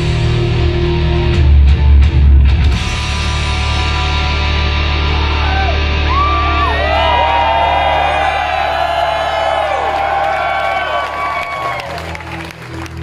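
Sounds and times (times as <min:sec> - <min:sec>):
live rock band: 0:00.0 - 0:08.2
guitar and bass chord ringing: 0:00.0 - 0:09.8
crowd cheering and whooping: 0:04.8 - 0:13.0.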